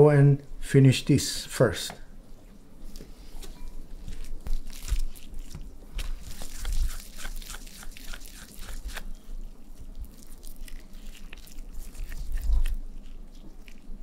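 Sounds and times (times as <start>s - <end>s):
wet squishing of meat by hand: 4.0s - 14.0s.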